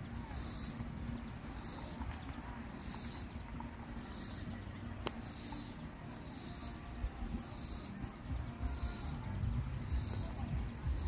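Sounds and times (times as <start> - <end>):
insect rasping calls: 0.0 - 11.0
low rumble: 8.2 - 11.0.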